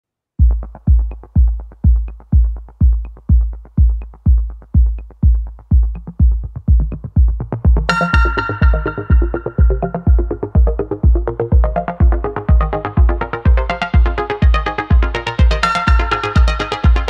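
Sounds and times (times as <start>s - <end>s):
kick drum beat: 0.4s - 17.0s
bright synth melody: 7.9s - 17.0s.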